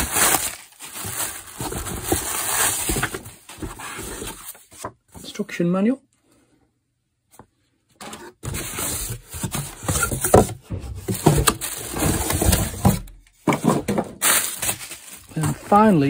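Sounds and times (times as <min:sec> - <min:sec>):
plastic wrapping crinkling: 0:00.0 - 0:04.6, 0:11.1 - 0:13.0, 0:14.2 - 0:16.0
cardboard scraping: 0:00.0 - 0:05.0, 0:08.0 - 0:16.0.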